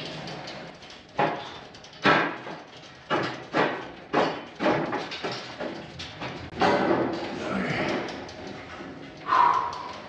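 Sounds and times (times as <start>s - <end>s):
metal clunks and knocks: 1.2s - 8.1s.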